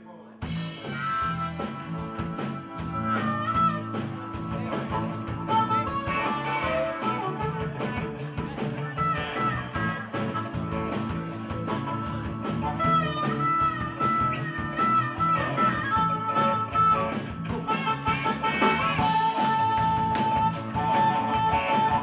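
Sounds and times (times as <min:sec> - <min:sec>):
blues-rock band playing: 0:00.4 - 0:22.0
harmonica solo: 0:00.6 - 0:22.0.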